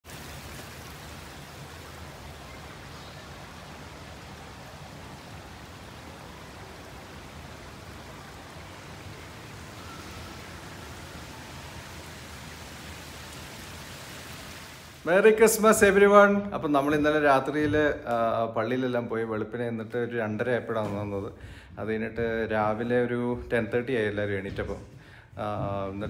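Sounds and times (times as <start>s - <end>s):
water flowing over pebbles: 0.0s - 16.1s.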